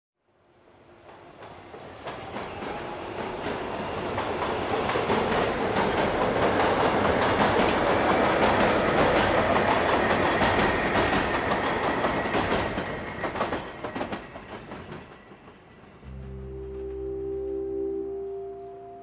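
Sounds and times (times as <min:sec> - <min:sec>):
train wheels clattering: 0:01.1 - 0:16.0
faint high whine: 0:16.0 - 0:19.0.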